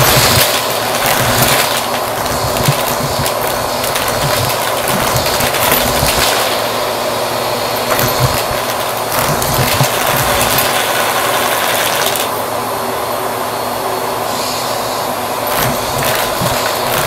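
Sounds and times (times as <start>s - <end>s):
coins knocking against nozzle: 0.0s - 6.6s, 7.8s - 12.3s, 15.5s - 17.0s
vacuum cleaner running: 0.0s - 17.0s.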